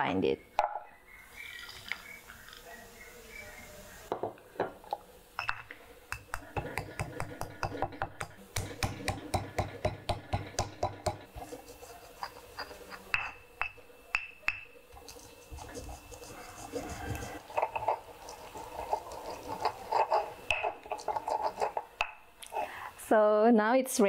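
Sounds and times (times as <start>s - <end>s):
pestle scraping and grinding: 5.4s - 22.7s
stone pestle pounding in mortar: 6.1s - 14.8s.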